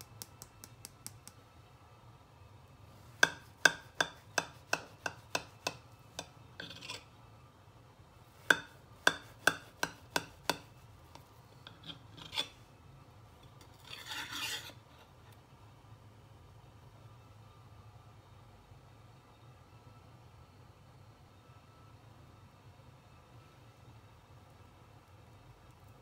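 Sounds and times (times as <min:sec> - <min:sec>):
knife scraping a plate: 0:03.2 - 0:07.1, 0:08.5 - 0:12.7, 0:13.6 - 0:15.2
knife rasping through crust: 0:06.6 - 0:07.1, 0:11.7 - 0:12.6, 0:13.7 - 0:14.8.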